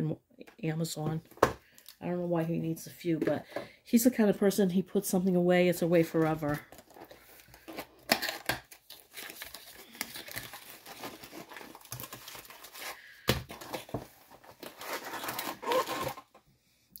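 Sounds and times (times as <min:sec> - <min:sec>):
plastic wrap tearing and crinkling: 0:06.6 - 0:16.4.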